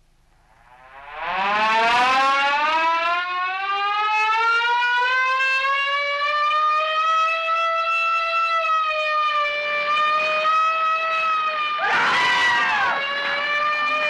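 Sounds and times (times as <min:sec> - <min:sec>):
siren wail: 0:00.7 - 0:14.0.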